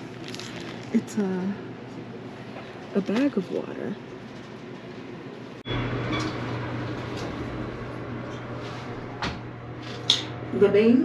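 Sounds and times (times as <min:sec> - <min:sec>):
elevator humming: 0:03.0 - 0:11.0.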